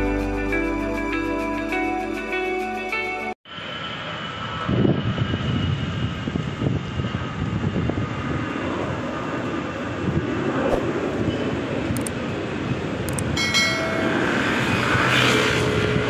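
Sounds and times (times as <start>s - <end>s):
wind buffeting the microphone: 4.4s - 16.0s.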